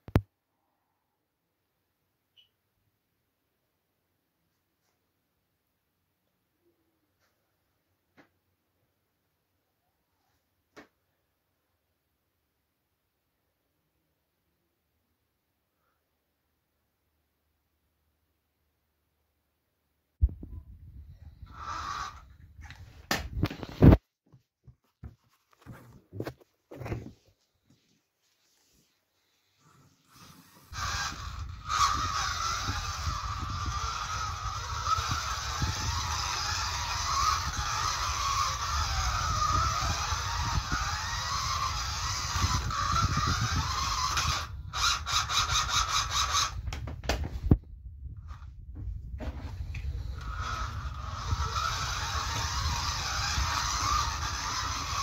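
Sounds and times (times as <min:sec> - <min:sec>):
slot car on plastic track: 0:21.5 - 0:22.3, 0:30.1 - 0:46.6, 0:49.9 - 0:55.0.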